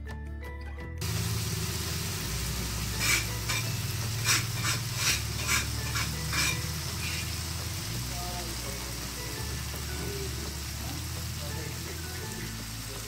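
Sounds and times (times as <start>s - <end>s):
paste sizzling in hot oil: 1.0s - 13.0s
spatula scraping a wok: 2.6s - 7.8s.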